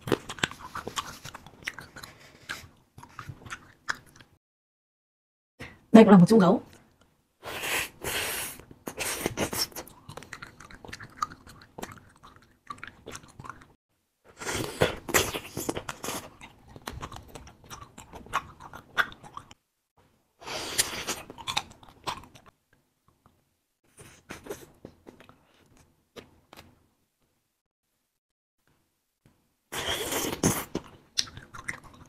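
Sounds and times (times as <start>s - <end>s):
chewing candy mouth sounds: 0.0s - 4.4s, 8.6s - 13.8s, 14.5s - 19.6s, 20.6s - 22.6s, 29.8s - 32.0s.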